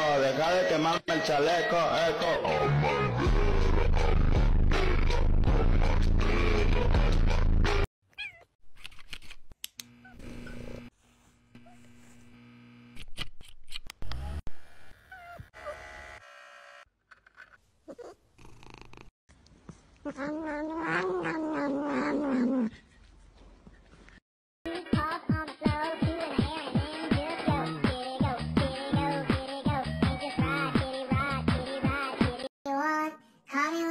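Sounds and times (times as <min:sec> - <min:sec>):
cat meowing: 0:08.1 - 0:08.5.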